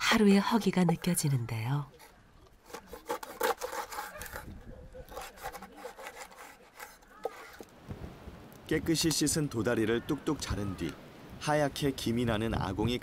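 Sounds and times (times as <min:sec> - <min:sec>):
knife scraping through fish: 0:01.9 - 0:07.7.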